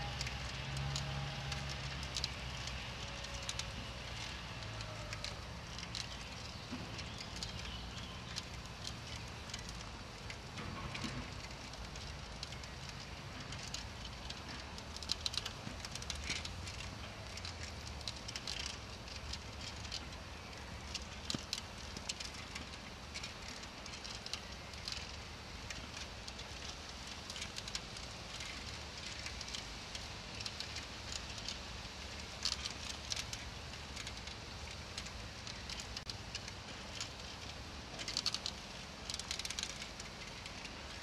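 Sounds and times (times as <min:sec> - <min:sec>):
bicycle rolling over grass: 0:00.0 - 0:41.0.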